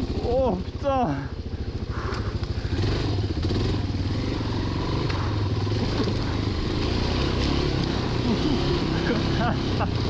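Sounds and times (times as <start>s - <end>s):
motorcycle engine running: 0.0s - 10.0s.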